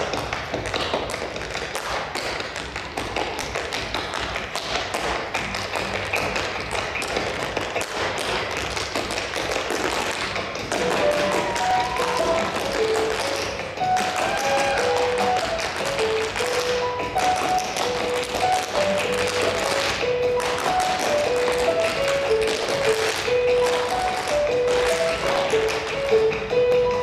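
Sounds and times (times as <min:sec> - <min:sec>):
tap shoes on stage floor: 0:00.0 - 0:27.0
melody: 0:10.8 - 0:27.0.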